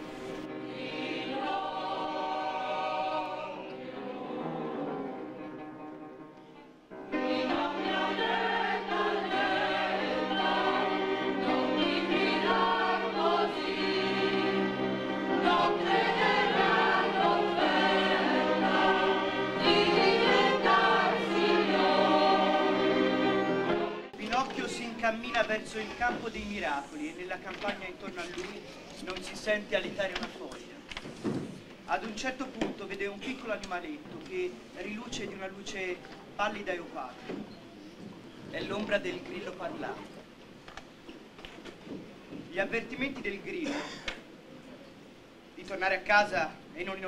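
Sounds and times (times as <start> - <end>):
choir singing with accompaniment: 0.0 - 5.8, 6.9 - 24.2.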